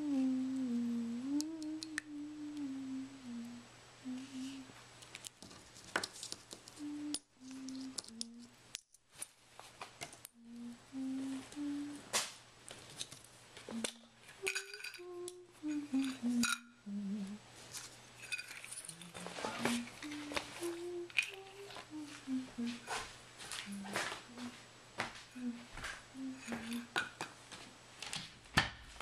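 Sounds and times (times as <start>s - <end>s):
person humming a tune: 0.0s - 4.8s, 6.8s - 8.6s, 10.3s - 12.2s, 13.7s - 17.5s, 18.8s - 23.0s, 23.6s - 24.6s, 25.3s - 27.1s
faint low hum: 0.0s - 29.0s
ceramic mug clinks: 14.4s - 15.0s.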